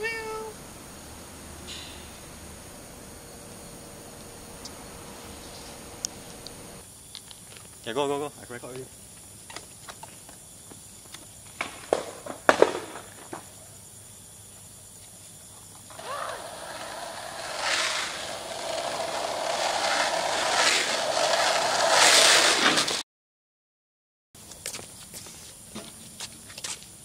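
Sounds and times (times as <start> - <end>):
skateboard wheels rolling on asphalt: 0.0 - 7.8, 9.0 - 13.6, 14.7 - 23.0.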